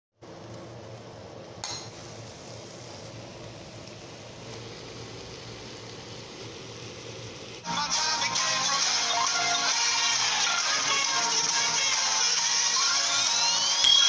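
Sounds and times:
food sizzling in a pan: 0.2s - 14.0s.

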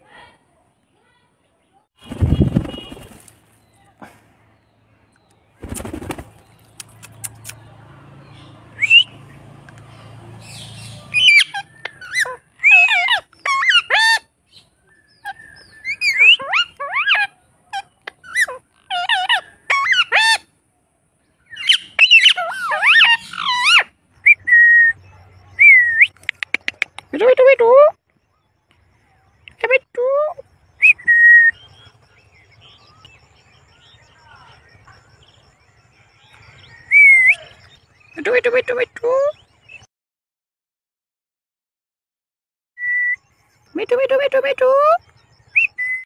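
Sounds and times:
parakeets calling and chattering: 5.6s - 20.5s, 21.4s - 27.4s.

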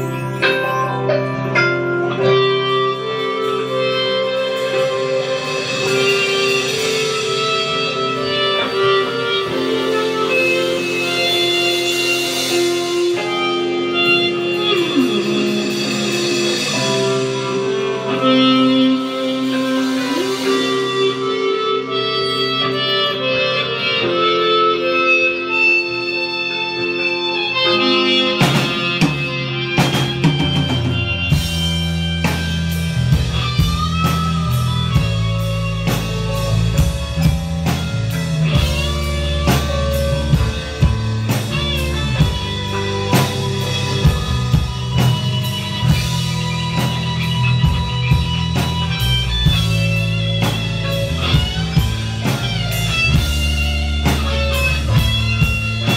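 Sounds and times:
heavy low bass line: 0.0s - 22.2s, 28.2s - 55.9s
drum kit beat: 0.0s - 25.6s, 26.2s - 55.9s
electric guitar melody: 0.0s - 55.9s.

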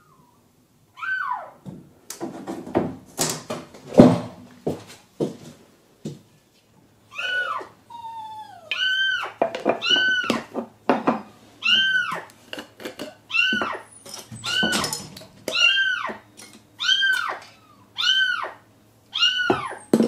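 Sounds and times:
knocks and clatter: 1.6s - 5.4s.

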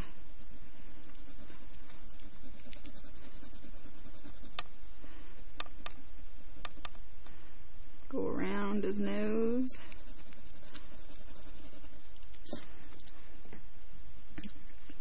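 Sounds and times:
crayon scribbling on paper: 0.4s - 4.6s, 9.7s - 12.6s.

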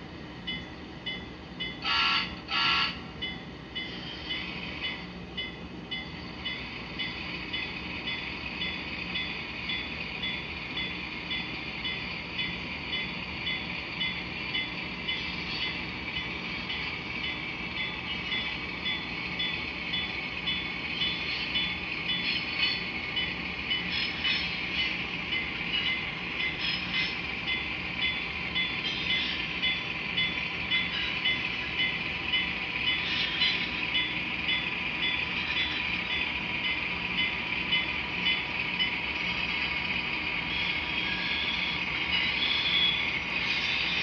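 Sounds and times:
locomotive bell ringing: 0.5s - 44.0s
model locomotive horn blasts: 1.8s - 3.0s.

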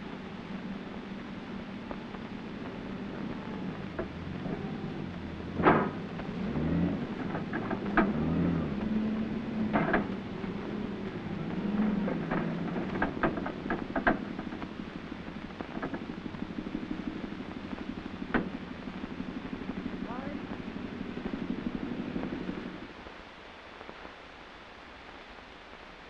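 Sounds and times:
forklift engine running: 0.0s - 23.0s
metal clanks and knocks: 5.5s - 6.4s, 7.1s - 8.3s, 9.7s - 10.2s, 11.7s - 14.6s.

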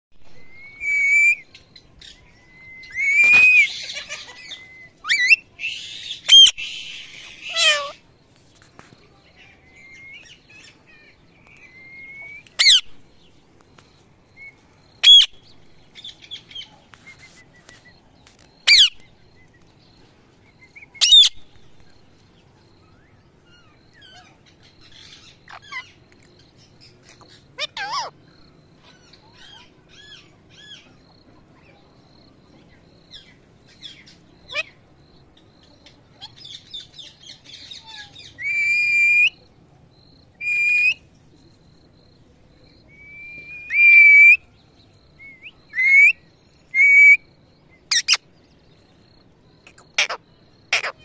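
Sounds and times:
parrot sharp shrieks: 0.6s - 1.4s, 3.0s - 3.7s, 46.8s - 47.2s, 50.0s - 51.0s
parrot whistles and screeches: 0.6s - 1.4s, 2.8s - 3.7s
soft parrot chatter: 6.2s - 8.0s, 26.9s - 28.2s, 49.6s - 51.0s.

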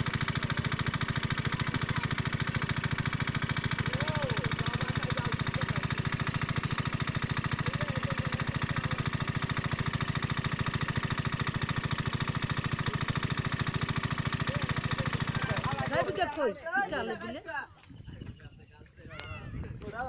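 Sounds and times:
water pump engine puttering: 0.0s - 16.5s.

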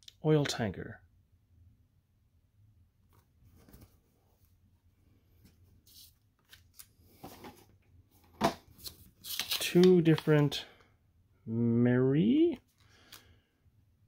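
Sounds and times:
paper rustling: 3.1s - 4.5s, 8.7s - 10.5s.

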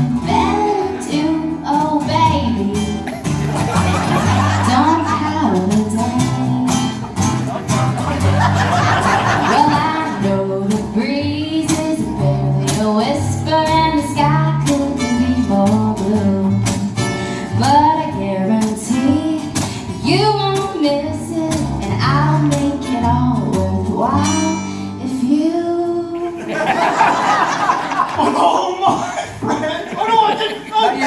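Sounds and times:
woman singing: 0.0s - 3.0s, 4.6s - 7.0s, 9.5s - 26.4s
strummed acoustic guitar: 0.0s - 25.5s
plucked double bass: 0.0s - 26.0s.

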